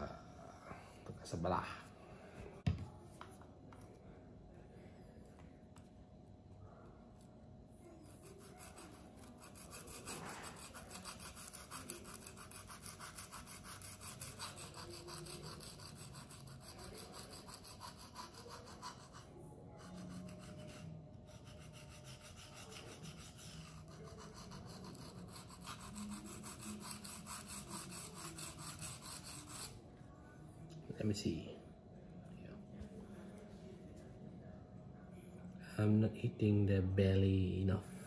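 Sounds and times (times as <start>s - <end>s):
knife rubbing on sharpening stone: 8.0s - 19.2s, 19.8s - 29.7s.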